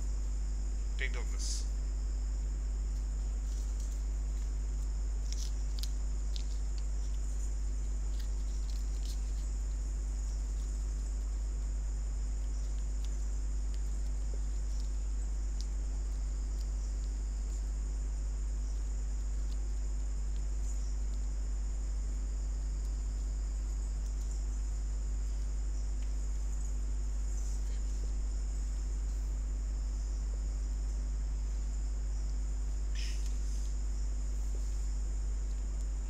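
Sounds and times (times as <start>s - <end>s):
low electrical hum: 0.0s - 36.0s.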